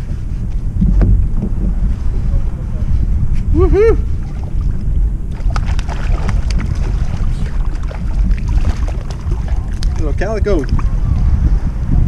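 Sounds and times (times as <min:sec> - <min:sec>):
wind rumble on microphone: 0:00.0 - 0:12.0
fish splashing at water surface: 0:05.3 - 0:10.9.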